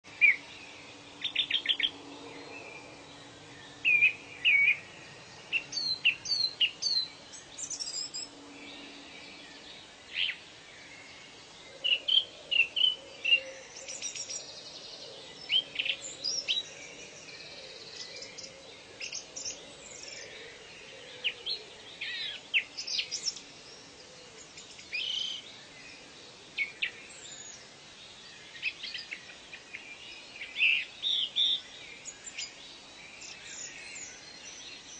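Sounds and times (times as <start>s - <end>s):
birds calling and chirping: 0.0s - 34.9s
steady background hiss: 0.1s - 34.9s.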